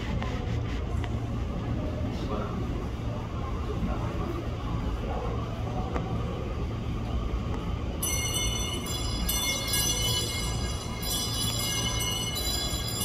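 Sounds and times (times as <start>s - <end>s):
train rumbling: 0.0s - 13.0s
electronic bell-like melody: 8.0s - 13.0s.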